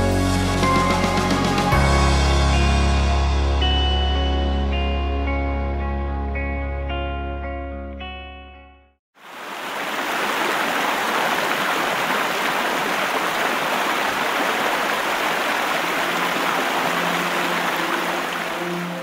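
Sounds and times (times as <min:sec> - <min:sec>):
water rushing over rocks: 0:09.2 - 0:19.0.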